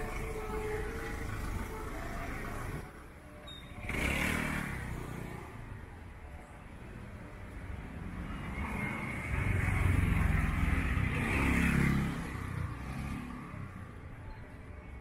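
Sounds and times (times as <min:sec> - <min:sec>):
vehicle engine passing by: 0:03.8 - 0:05.2.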